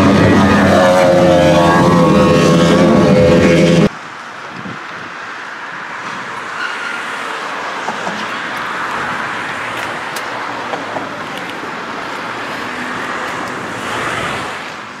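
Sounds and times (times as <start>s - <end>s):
distant engine drone: 0.0s - 4.1s.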